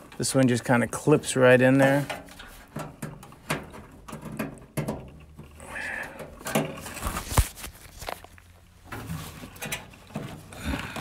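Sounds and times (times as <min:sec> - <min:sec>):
clicks and taps on sheet metal: 0:02.1 - 0:05.5.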